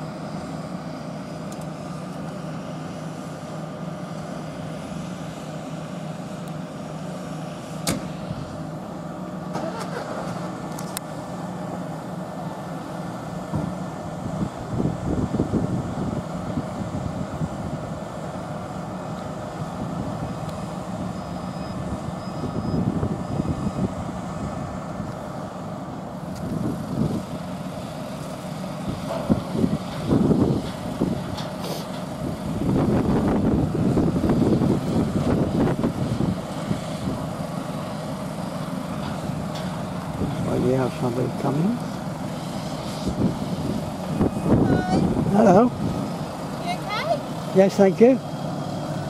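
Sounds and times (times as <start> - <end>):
diesel lorry engine running: 0.0 - 49.0
wind gusts on microphone: 14.2 - 18.6, 19.6 - 25.3, 26.3 - 27.4, 28.9 - 31.4, 32.1 - 37.3, 43.0 - 46.2.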